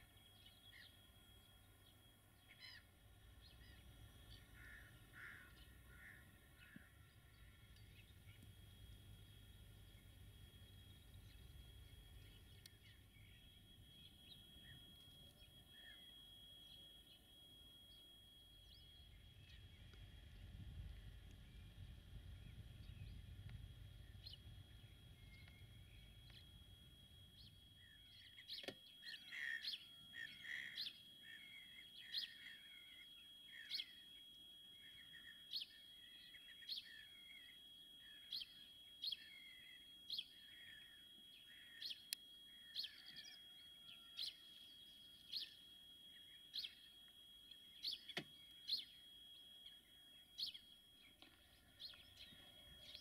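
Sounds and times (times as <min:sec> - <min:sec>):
birds twittering: 0:00.0 - 0:53.0
faint steady high tone: 0:00.0 - 0:53.0.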